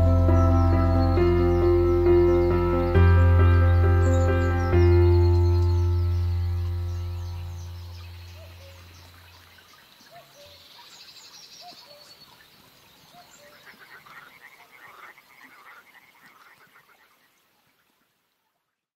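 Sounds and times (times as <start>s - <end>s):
background music: 0.0s - 8.6s
bird chirps: 0.0s - 13.8s
frogs calling: 0.0s - 18.0s
rapid pulsing frog trills: 13.5s - 17.4s.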